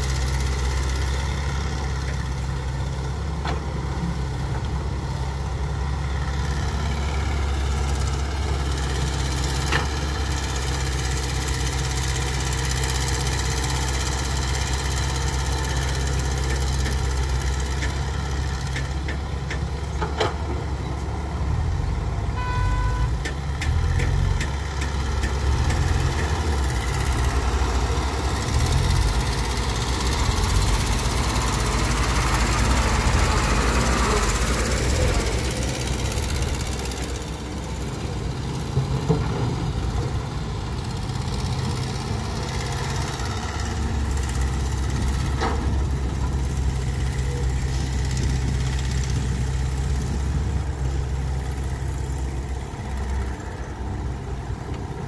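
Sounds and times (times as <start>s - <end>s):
diesel engines running: 0.0s - 55.0s
short high beep: 22.4s - 23.1s.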